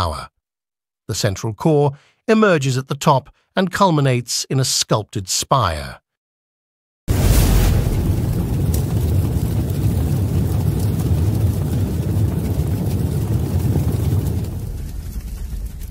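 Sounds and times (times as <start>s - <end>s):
deep steady rumbling: 7.1s - 15.9s.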